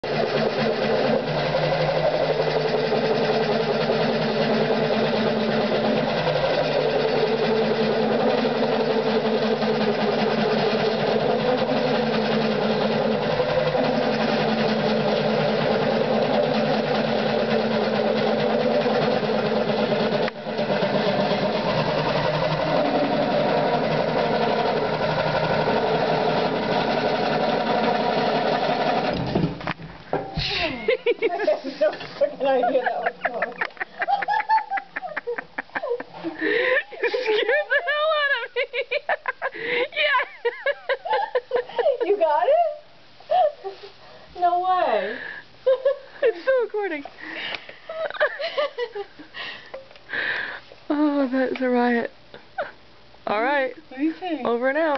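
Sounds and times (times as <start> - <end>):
coring knife cutting spinning wood: 0.0 - 29.7
lathe running: 0.0 - 30.3.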